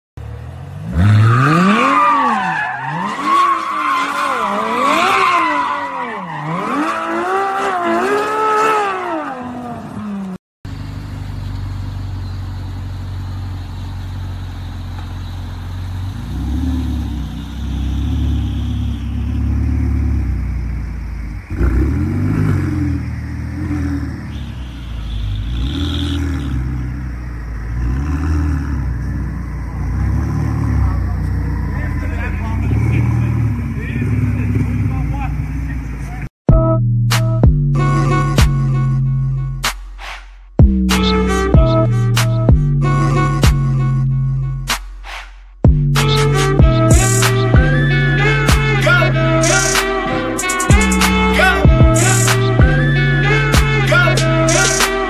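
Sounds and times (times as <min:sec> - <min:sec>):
sports car engine revving hard: 0:06.4 - 0:10.0, 0:14.4 - 0:36.2
car engine running low: 0:09.8 - 0:36.7.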